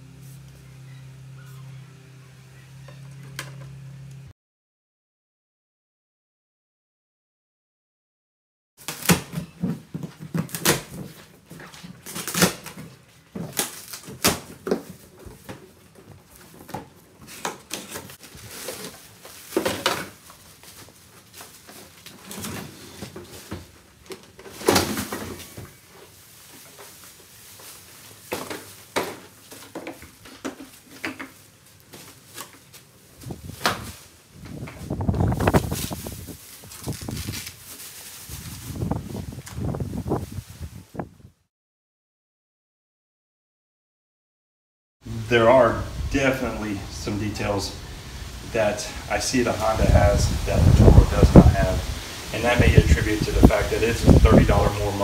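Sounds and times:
plastic wrap rustling: 8.8s - 40.9s.

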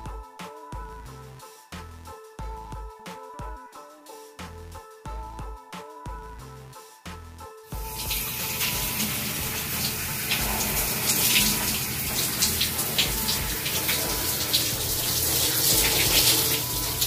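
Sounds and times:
water running from faucet: 7.8s - 17.0s.

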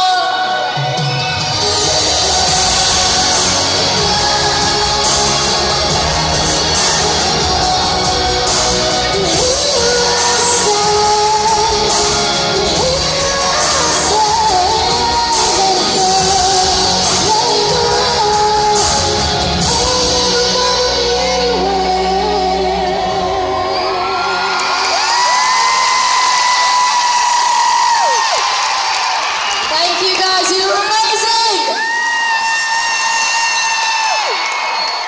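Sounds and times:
woman singing into microphone: 0.0s - 1.0s, 1.6s - 25.8s
loud drums and bass: 1.2s - 21.6s.

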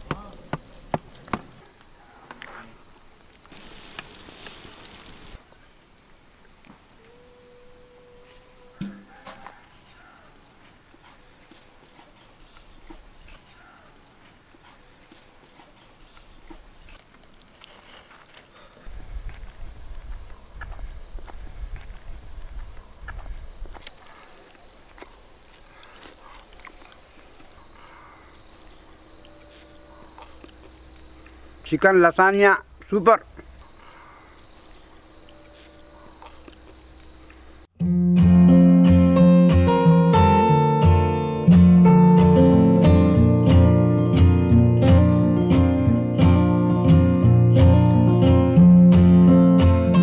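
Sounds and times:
insects trilling: 0.0s - 37.7s.

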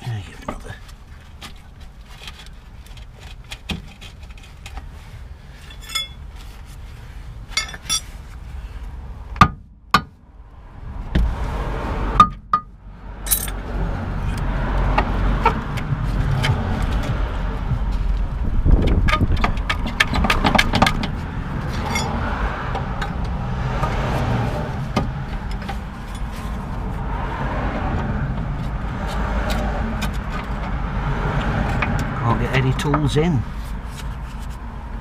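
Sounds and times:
low rumbling noise: 4.9s - 32.5s
metal tools clinking on metal: 5.6s - 6.2s, 7.5s - 8.1s, 13.3s - 13.6s, 21.8s - 22.2s.

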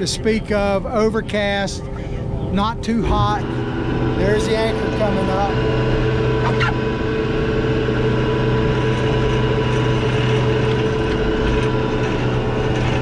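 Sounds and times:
boat engine drone: 0.0s - 13.0s
anchor winch turning: 8.4s - 13.0s.

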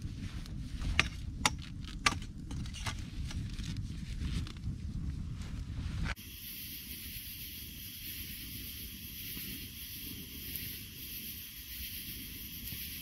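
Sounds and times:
campfire hissing and crackling: 6.1s - 13.0s.

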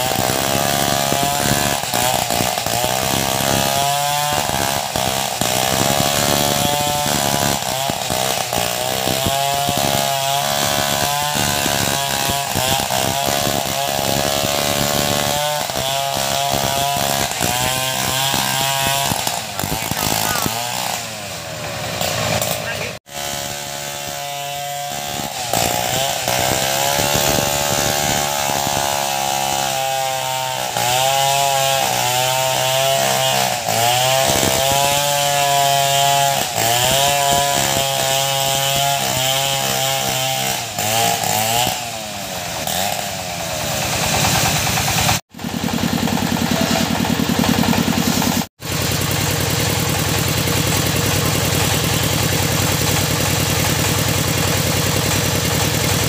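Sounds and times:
chainsaw cutting logs: 0.0s - 56.0s
engine running steadily: 43.4s - 56.0s.

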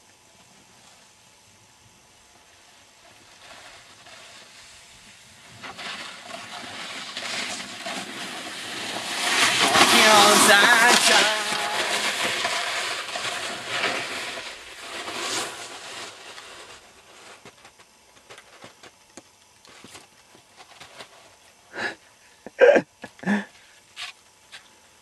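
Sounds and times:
snowboard scraping over snow: 3.0s - 18.7s
person's voice bursts: 9.9s - 12.0s, 22.6s - 23.5s.

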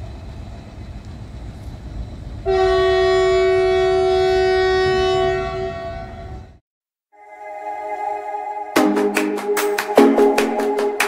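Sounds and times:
train rumbling: 0.0s - 6.6s
locomotive horn blast: 2.4s - 6.6s.

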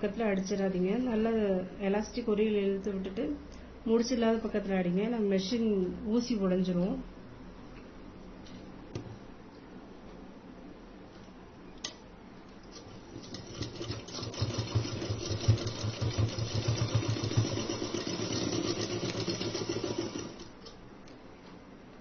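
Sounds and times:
sewing machine stitching: 12.8s - 20.5s.

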